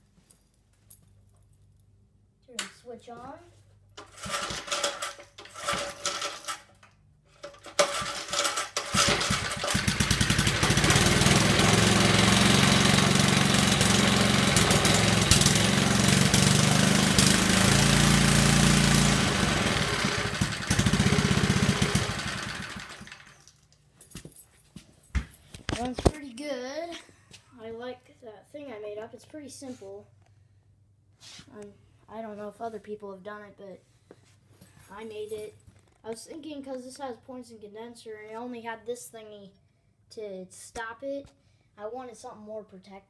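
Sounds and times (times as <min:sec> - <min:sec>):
small engine running: 0:04.0 - 0:06.7, 0:07.4 - 0:23.5
recoil starter pulls: 0:04.0 - 0:23.5.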